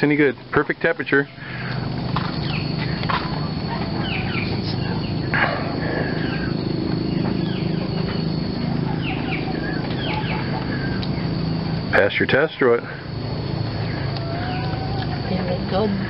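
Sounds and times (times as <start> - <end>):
birds chirping falling calls: 0.0 - 16.0
high whine of insects: 0.0 - 16.0
steady low hum: 0.0 - 16.0.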